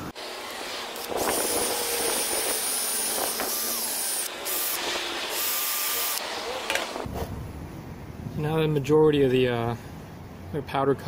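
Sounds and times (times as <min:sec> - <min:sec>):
cordless drill motor whine: 0:00.0 - 0:07.0.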